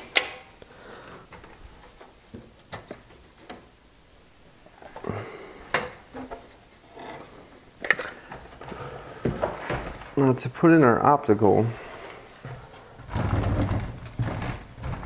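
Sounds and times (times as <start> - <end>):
plastic and metal parts clicking: 7.8 - 8.2.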